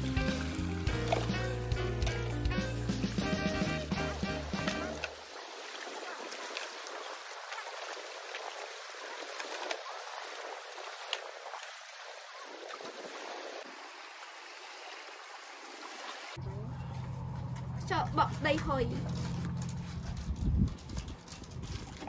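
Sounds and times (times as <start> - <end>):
small waves lapping: 4.2 - 16.5.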